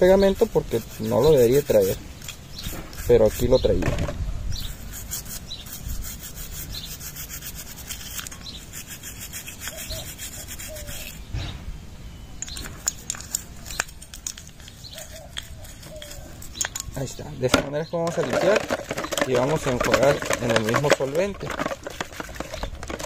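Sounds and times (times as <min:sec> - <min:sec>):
toothbrush scrubbing metal: 0:00.0 - 0:03.8, 0:04.6 - 0:11.2, 0:12.6 - 0:17.3, 0:18.1 - 0:23.0.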